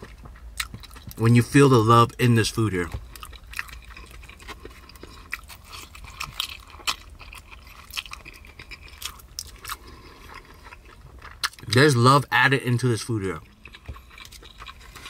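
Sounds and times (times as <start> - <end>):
person chewing food: 0.0 - 11.8, 12.8 - 15.0.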